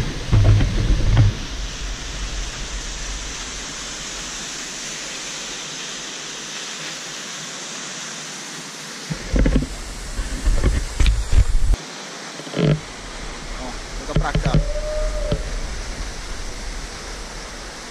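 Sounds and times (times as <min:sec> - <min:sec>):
low rumbles on microphone: 0:00.0 - 0:04.6, 0:12.8 - 0:17.9
waterfall rushing: 0:00.0 - 0:17.9.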